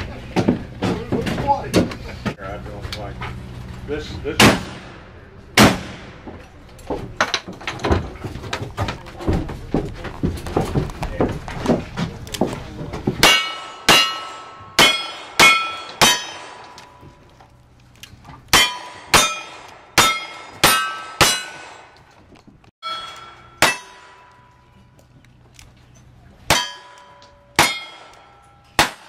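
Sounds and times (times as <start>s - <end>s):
clatter of knocks: 6.2s - 13.2s
steel target ringing: 13.2s - 17.0s, 18.5s - 22.0s, 22.8s - 24.9s, 26.5s - 29.0s.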